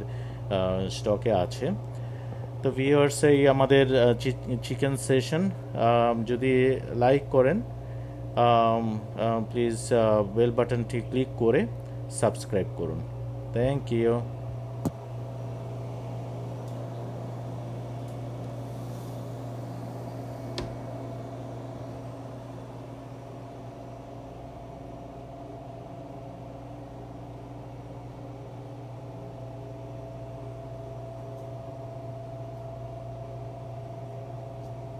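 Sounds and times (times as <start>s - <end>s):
cooler compressor and fans humming: 0.0s - 34.9s.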